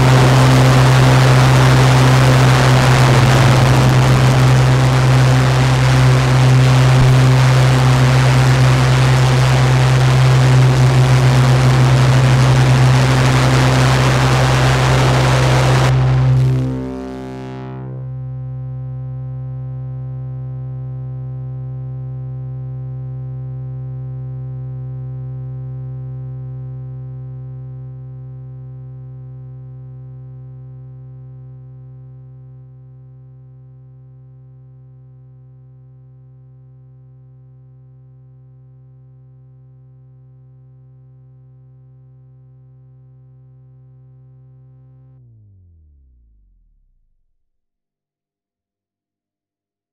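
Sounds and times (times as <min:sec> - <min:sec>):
noise burst: 0:00.0 - 0:18.2
synthesizer drone: 0:00.0 - 0:25.4.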